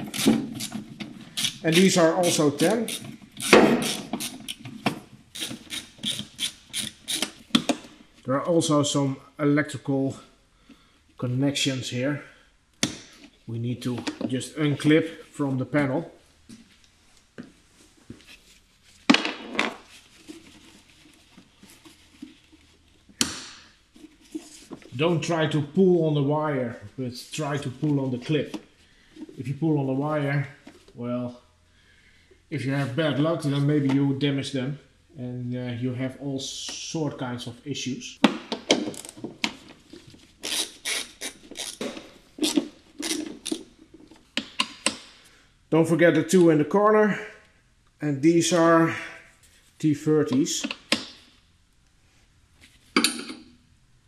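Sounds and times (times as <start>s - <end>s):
hand ratchet rasping: 0.0s - 4.6s, 5.3s - 7.4s, 40.4s - 41.8s.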